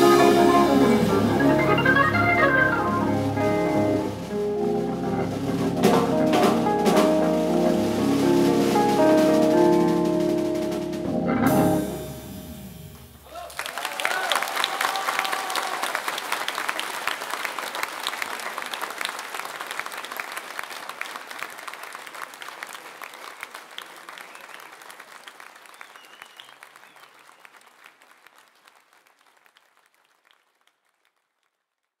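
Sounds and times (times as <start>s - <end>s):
audience applauding: 0.0s - 5.4s, 13.2s - 31.6s.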